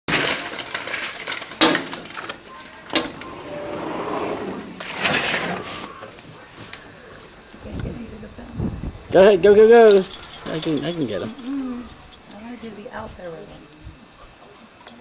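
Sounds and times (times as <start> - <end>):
sliding glass door opening: 2.9 - 6.0.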